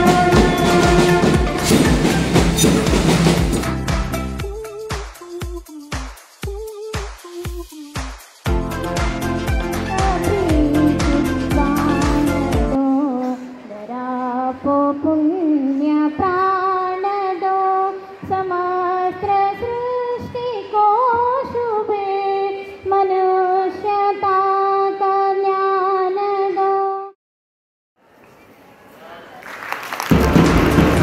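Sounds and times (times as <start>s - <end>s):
music with a beat: 0.0s - 12.8s
woman singing unaccompanied: 4.4s - 8.1s, 9.8s - 27.1s.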